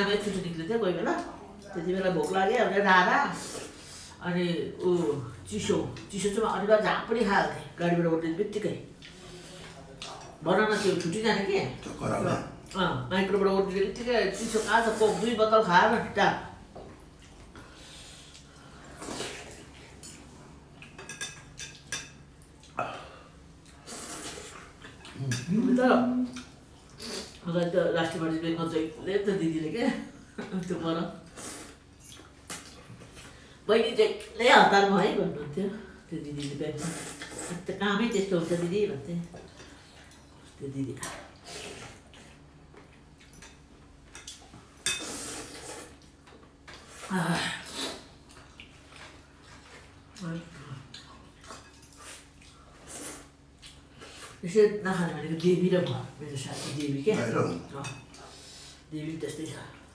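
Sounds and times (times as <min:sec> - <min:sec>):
person slurping noodle soup: 0:45.0 - 0:46.0.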